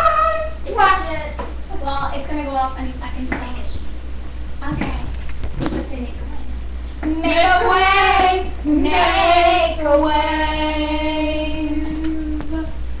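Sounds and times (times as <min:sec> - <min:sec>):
girls singing: 0:00.0 - 0:00.7, 0:07.0 - 0:12.9.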